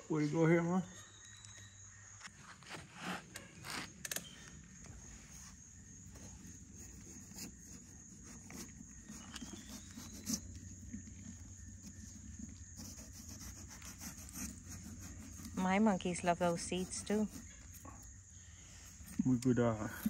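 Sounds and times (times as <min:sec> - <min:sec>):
metal spoon scraping pumpkin: 0:06.8 - 0:10.8.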